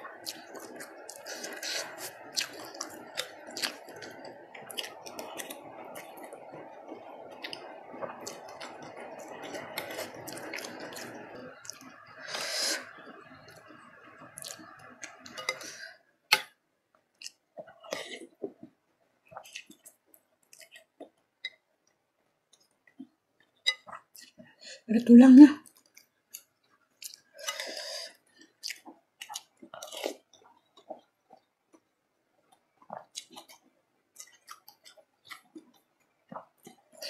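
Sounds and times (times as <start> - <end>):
wet chewing with smacking: 0.2 - 11.9, 28.4 - 31.9, 32.5 - 37.0.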